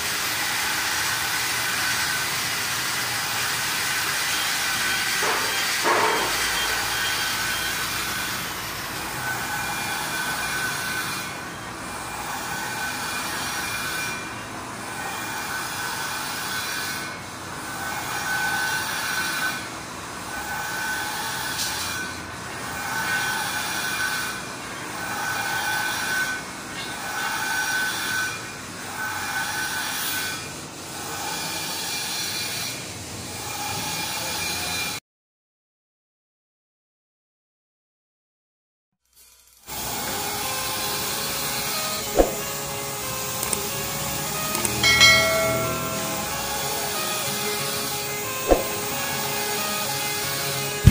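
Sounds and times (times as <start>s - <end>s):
workshop machinery humming: 0.0s - 26.8s, 39.7s - 50.9s.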